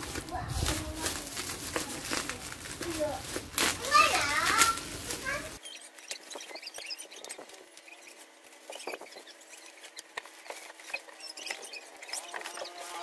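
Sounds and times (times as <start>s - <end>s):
plastic packaging crinkling: 0.0s - 13.0s.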